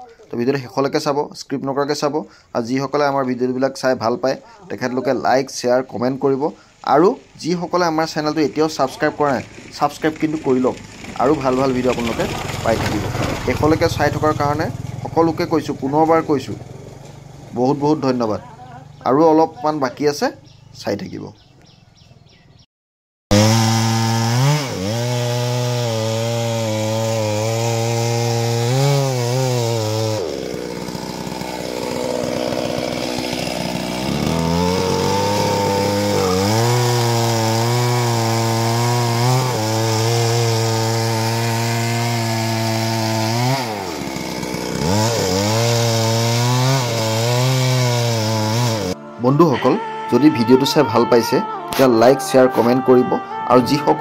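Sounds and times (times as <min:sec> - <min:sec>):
chainsaw cutting wood: 0:06.1 - 0:18.4, 0:23.3 - 0:49.1.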